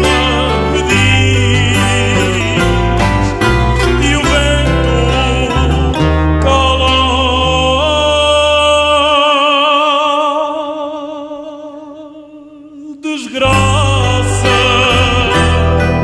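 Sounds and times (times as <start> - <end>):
bass: 0.0 - 9.3, 13.4 - 16.0
acoustic guitars: 0.0 - 10.6, 13.2 - 16.0
man singing long note: 0.0 - 16.0.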